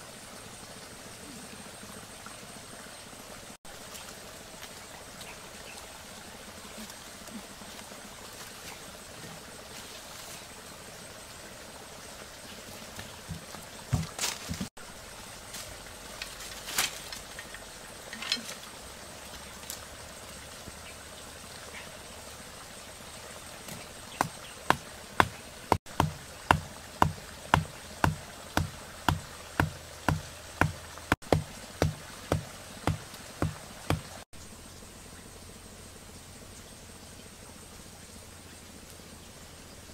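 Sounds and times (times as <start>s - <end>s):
wooden stake being pounded: 13.0s - 14.7s, 23.7s - 34.2s.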